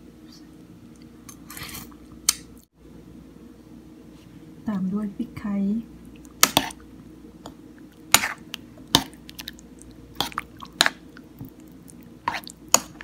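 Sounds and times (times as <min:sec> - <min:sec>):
person slurping and chewing soup: 0:06.1 - 0:06.8, 0:07.8 - 0:13.0.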